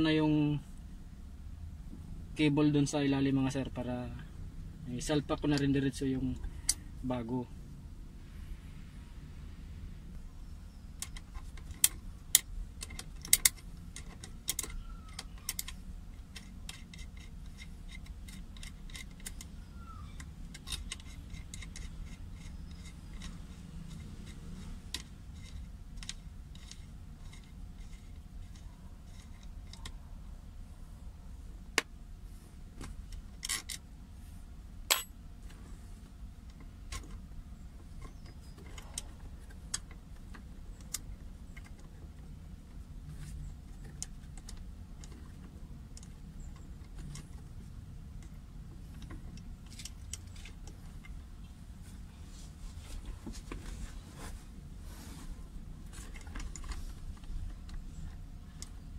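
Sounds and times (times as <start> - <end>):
metal tools clinking on metal: 34.9 - 35.1.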